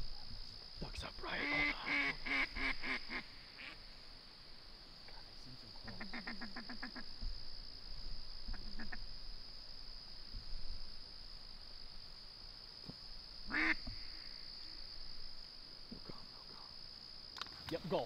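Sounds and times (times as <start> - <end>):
crickets chirring: 0.0 - 18.0
duck quacks: 1.4 - 3.8, 5.9 - 7.0, 13.5 - 13.8.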